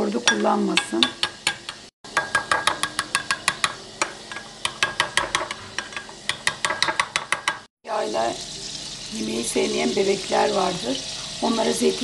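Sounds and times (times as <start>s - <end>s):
metal spoon beating in glass bowl: 0.2s - 7.7s.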